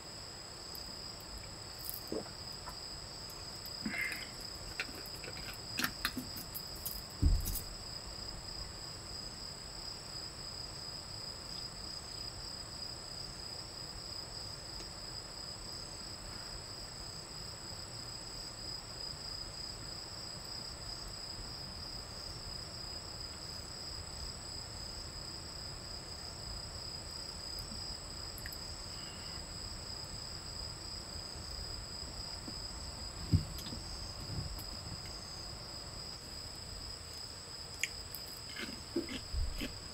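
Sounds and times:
night insects trilling: 0:00.0 - 0:39.9
knock on wooden table: 0:07.2 - 0:07.6.

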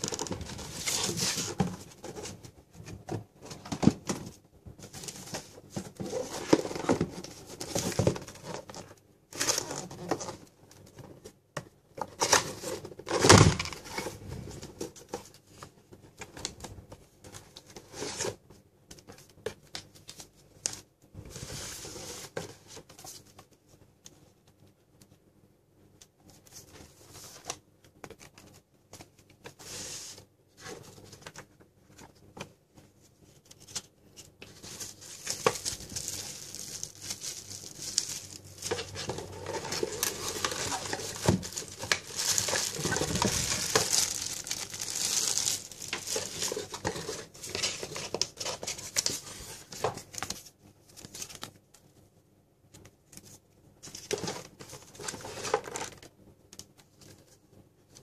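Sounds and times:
plastic wrapping crinkling: 0:34.5 - 0:50.3
cardboard scraping and knocking: 0:38.7 - 0:44.3.

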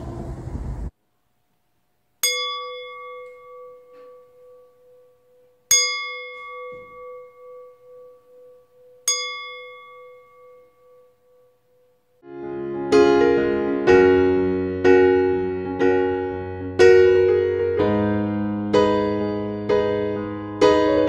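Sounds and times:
singing bowl struck with wooden striker: 0:02.2 - 0:05.1, 0:05.7 - 0:11.0.

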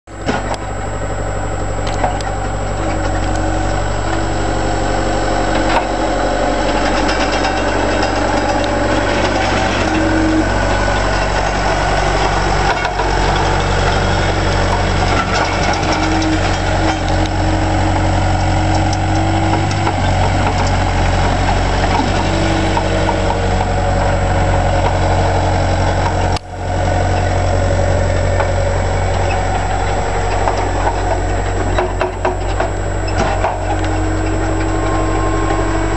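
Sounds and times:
diesel engine running: 0:00.0 - 0:35.9
mid-pitched whine: 0:00.1 - 0:35.9.

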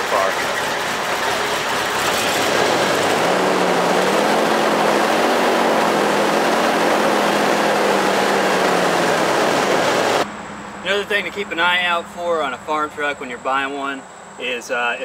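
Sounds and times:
engine idling with a miss: 0:00.0 - 0:03.3.

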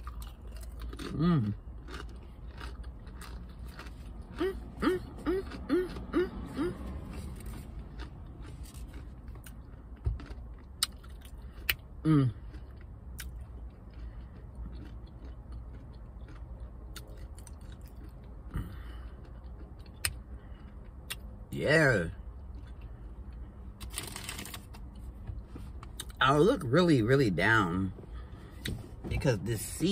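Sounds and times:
person chewing crunchy chips: 0:00.0 - 0:25.2, 0:25.8 - 0:28.6.

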